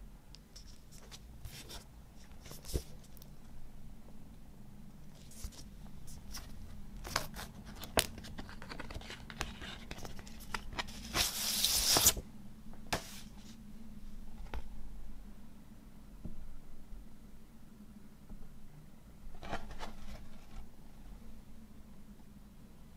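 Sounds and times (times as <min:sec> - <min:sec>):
paper sliding rush: 0:10.9 - 0:12.2.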